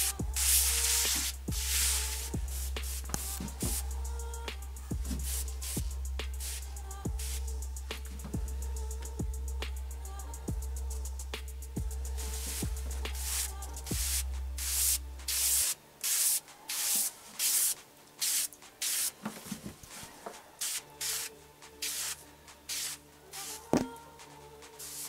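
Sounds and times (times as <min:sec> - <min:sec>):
sprayer hissing in short bursts: 0:00.0 - 0:03.8, 0:06.4 - 0:07.4, 0:12.3 - 0:19.1, 0:20.6 - 0:23.6, 0:24.8 - 0:25.0.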